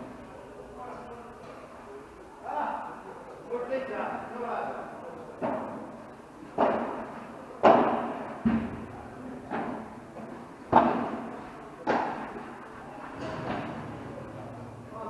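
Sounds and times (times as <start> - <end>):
ball hits with echo: 13.2 - 15.0.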